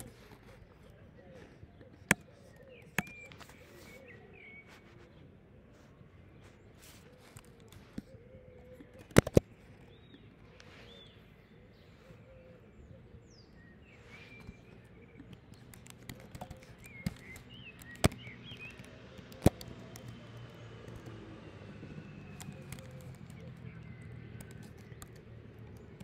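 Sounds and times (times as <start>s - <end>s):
keyboard and mouse clicks: 0.0s - 4.1s, 6.8s - 10.7s, 14.1s - 21.2s, 22.2s - 26.0s.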